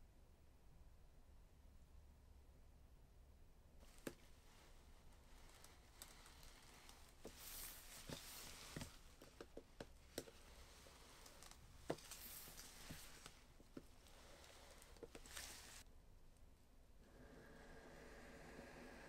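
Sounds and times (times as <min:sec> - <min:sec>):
plastic wrap rustling: 0:03.8 - 0:15.8.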